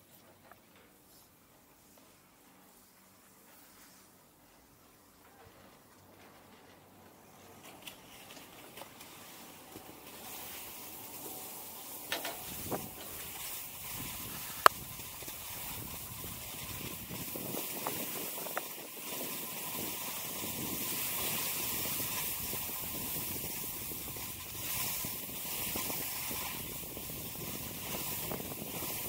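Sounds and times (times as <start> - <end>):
skis hissing over snow: 7.2 - 29.0.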